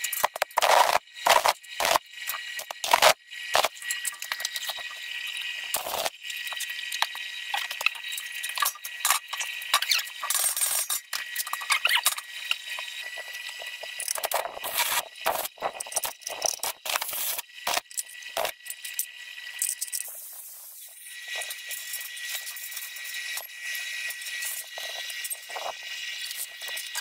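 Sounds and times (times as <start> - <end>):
welding arc crackling: 0.0 - 18.6.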